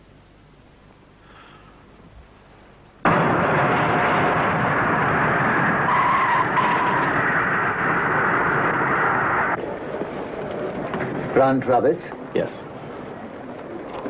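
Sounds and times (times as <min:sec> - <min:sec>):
jet airliner landing roar: 0:03.1 - 0:14.0
tyres squealing: 0:03.1 - 0:14.0.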